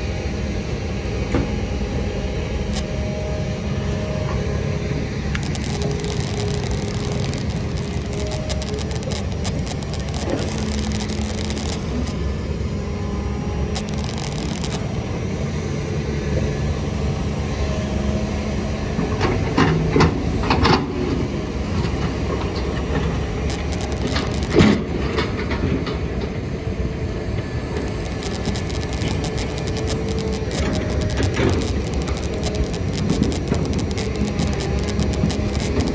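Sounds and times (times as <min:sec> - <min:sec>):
diesel engine running: 0:00.0 - 0:35.9.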